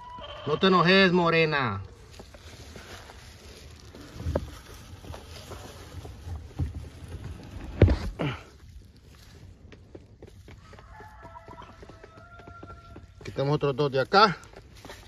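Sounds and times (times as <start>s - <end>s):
dry leaf litter rustling: 0.7s - 9.6s.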